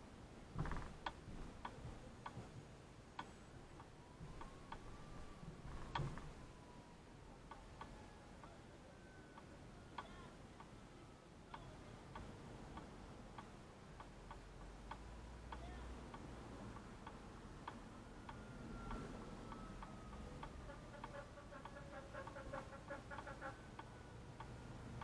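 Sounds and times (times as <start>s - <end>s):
faint regular ticking: 0.6s - 6.7s, 11.5s - 25.0s.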